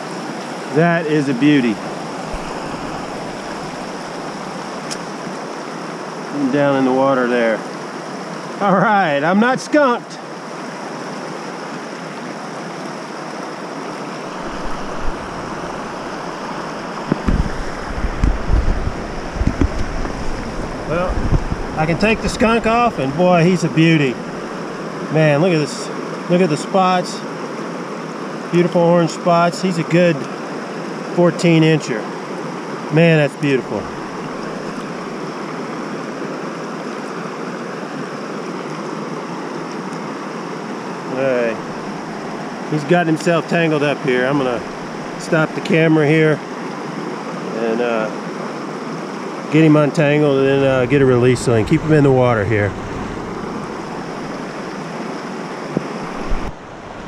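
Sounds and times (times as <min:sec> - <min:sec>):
river rushing over rocks: 0:00.0 - 0:07.0, 0:07.6 - 0:26.3, 0:30.3 - 0:57.0
low rumble on microphone: 0:14.4 - 0:22.8, 0:50.5 - 0:54.7.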